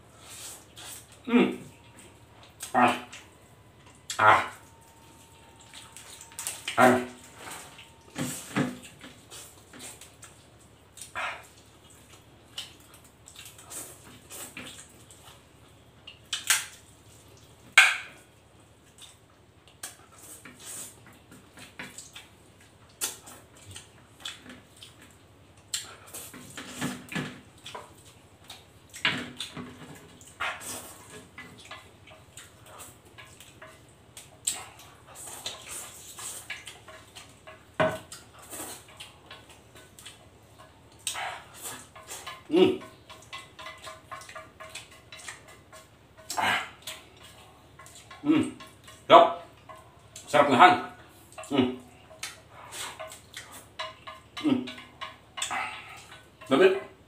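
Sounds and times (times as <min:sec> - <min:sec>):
man slurping and chewing noodles: 0:00.1 - 0:03.4, 0:04.0 - 0:15.5, 0:18.8 - 0:50.3, 0:51.0 - 0:56.5.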